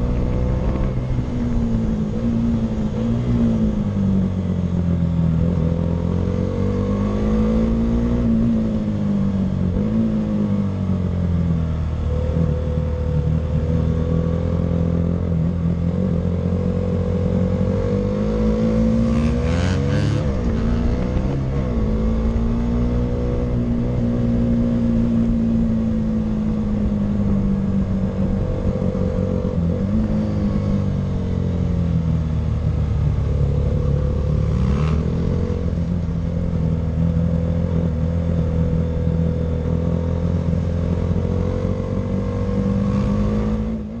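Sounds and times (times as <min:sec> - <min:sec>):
motorcycle engine revving: 0:00.0 - 0:44.0.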